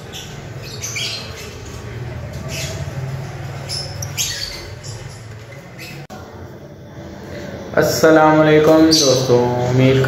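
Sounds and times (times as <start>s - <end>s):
lovebirds chirping: 0.0s - 6.1s, 8.7s - 10.0s.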